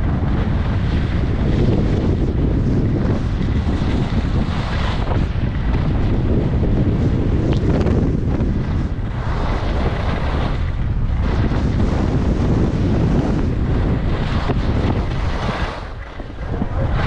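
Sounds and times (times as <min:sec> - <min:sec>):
skis carving on snow: 0:00.0 - 0:07.5
wind buffeting microphone: 0:00.0 - 0:17.0.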